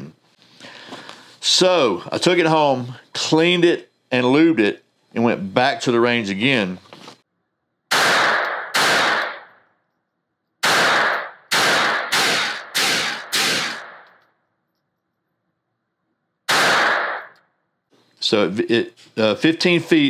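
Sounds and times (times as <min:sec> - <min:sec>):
pistol shots with echo: 0:07.9 - 0:09.6, 0:10.6 - 0:14.0, 0:16.5 - 0:17.4.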